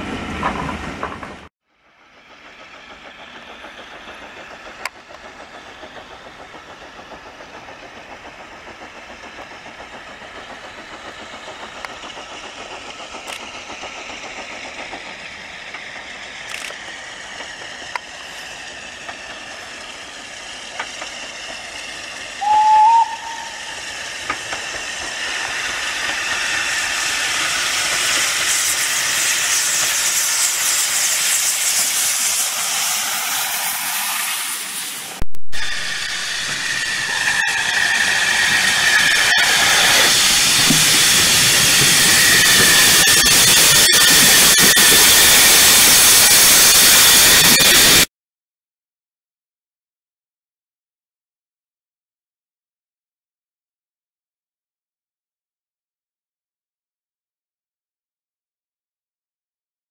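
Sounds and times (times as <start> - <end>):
steam locomotive hissing: 0.0 - 48.1
train whistle blast: 22.4 - 23.8.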